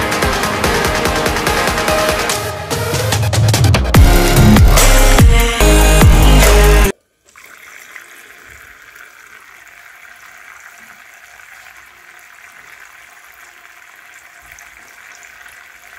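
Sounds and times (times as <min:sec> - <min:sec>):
water trickling into bowl: 0:07.2 - 0:15.9.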